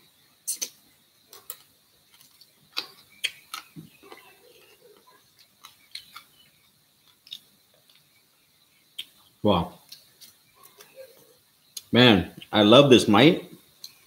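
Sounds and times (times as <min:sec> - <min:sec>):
small bones clicking and crunching: 0:01.3 - 0:08.2.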